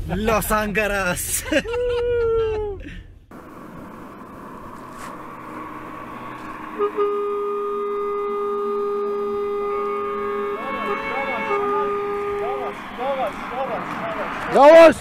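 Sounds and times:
vehicle road noise: 3.0s - 15.0s
vehicle horn toots: 5.0s - 14.4s.

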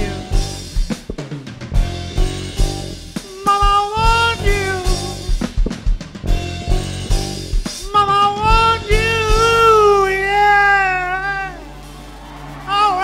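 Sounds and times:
drum kit beat: 0.0s - 13.0s
rock band playing: 0.0s - 13.0s
bending melodic lead line: 6.3s - 11.9s.

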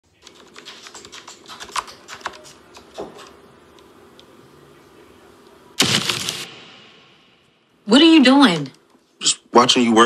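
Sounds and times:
laptop keyboard typing: 0.1s - 4.3s.

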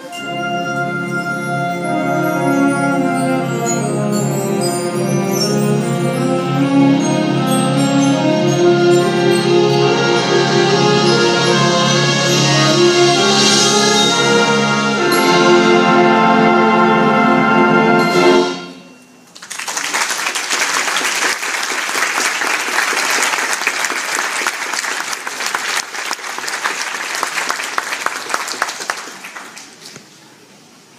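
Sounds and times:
concert band playing chords: 0.1s - 19.0s
audience applauding: 19.3s - 30.1s.

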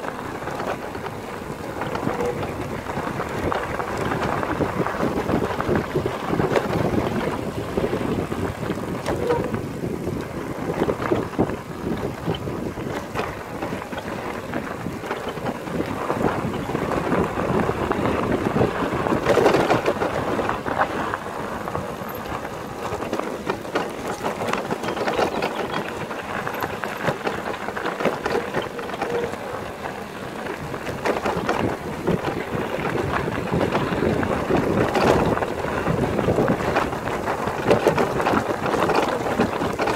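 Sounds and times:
bike frame rattling: 0.0s - 39.9s
tyres crunching on gravel: 0.0s - 39.9s
wind buffeting microphone: 0.0s - 39.9s.

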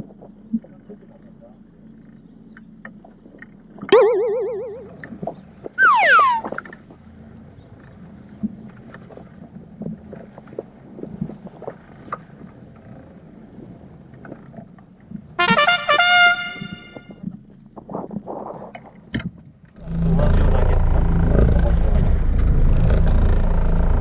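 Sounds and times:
falling whistle effect: 4.0s - 5.0s, 5.8s - 6.6s
trumpet-like jingle effect: 15.4s - 17.1s
boat engine humming: 20.0s - 24.0s.

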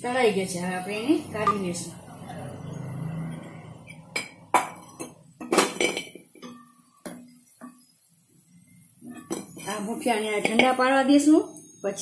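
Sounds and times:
metal skimmer clinking on pots: 3.3s - 7.8s.

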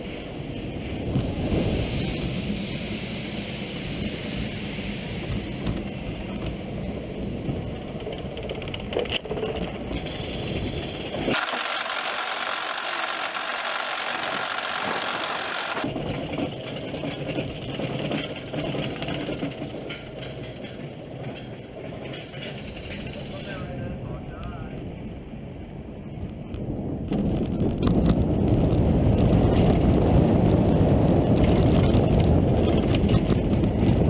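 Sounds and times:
roller coaster rumbling on track: 0.0s - 34.0s
rushing wind: 0.0s - 34.0s
hiss: 1.2s - 6.3s, 11.3s - 15.8s.

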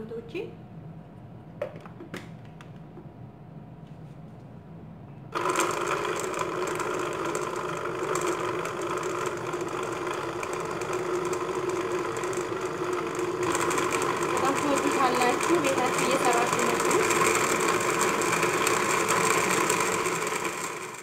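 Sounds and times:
blender running: 5.3s - 21.0s.

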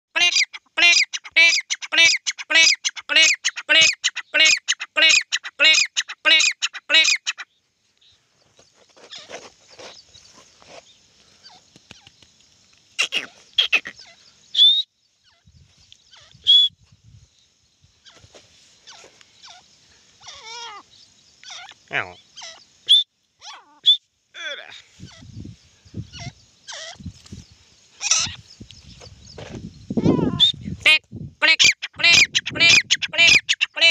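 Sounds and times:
francolin calling harshly: 0.1s - 8.2s, 12.8s - 16.8s, 17.9s - 33.9s
high whistled notes: 16.4s - 16.8s, 22.8s - 23.1s.

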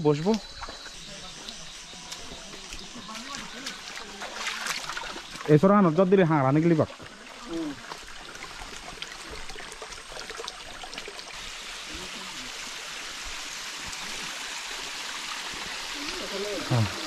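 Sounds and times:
stream running over rocks: 0.0s - 17.0s.

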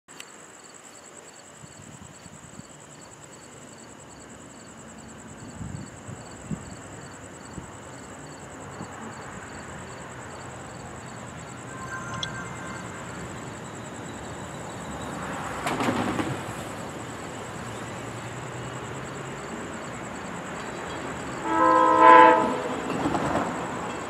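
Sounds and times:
insect chirping: 0.1s - 24.0s
insect trilling: 9.9s - 15.2s.

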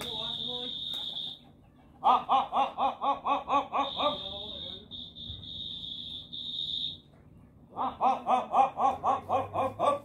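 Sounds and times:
high steady whistle: 0.1s - 1.4s, 3.9s - 7.0s.

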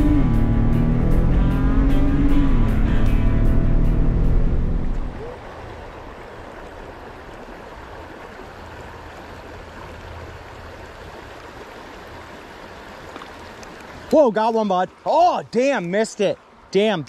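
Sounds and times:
loud music: 0.0s - 4.9s
river water flowing over rocks: 0.0s - 17.0s.

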